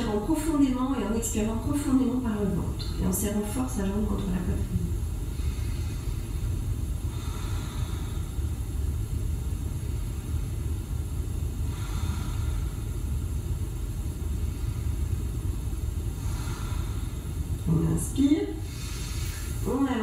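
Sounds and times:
steady low rumble: 0.0s - 20.0s
slow deep breathing: 5.0s - 17.6s, 18.6s - 19.7s.

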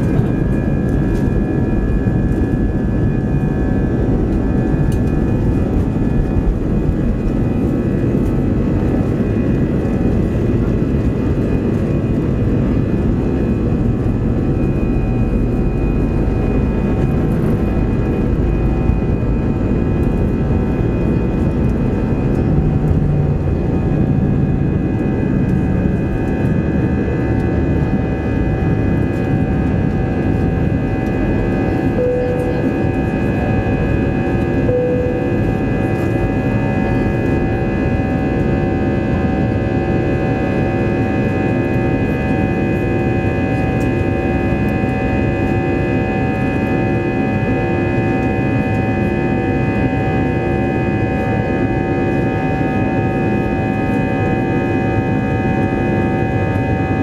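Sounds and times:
high whining fan tones: 0.0s - 57.0s
jet engines roaring: 0.0s - 57.0s
runway rumble: 19.3s - 26.4s.

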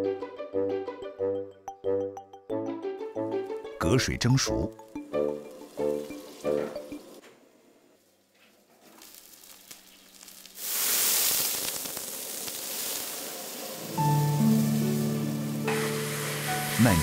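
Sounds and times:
food sizzling in a hot wok: 8.8s - 17.0s
loud steam hiss: 10.6s - 17.0s.

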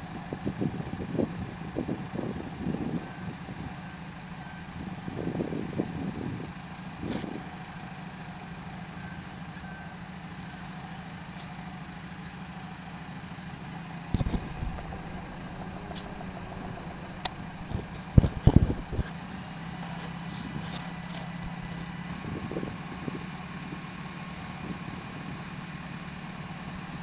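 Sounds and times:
diesel engine idling: 0.0s - 27.0s
low bumps: 14.1s - 20.6s.

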